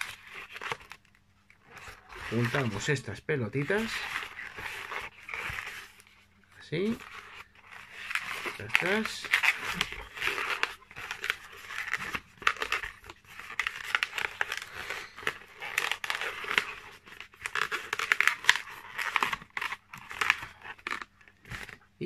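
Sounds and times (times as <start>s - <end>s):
balloon rubbing and squeaking: 0.0s - 22.0s.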